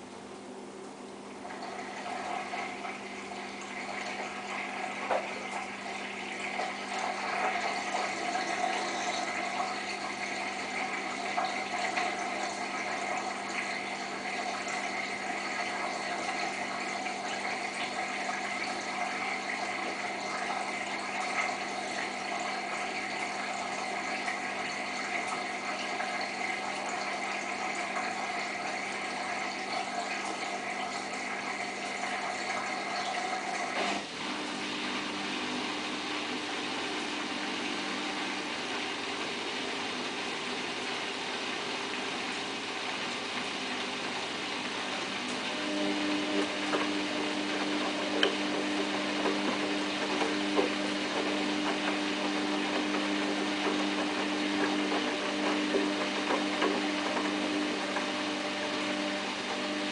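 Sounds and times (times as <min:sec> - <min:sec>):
drain pump humming: 0:00.0 - 0:59.9
water rushing and gurgling: 0:35.0 - 0:59.9.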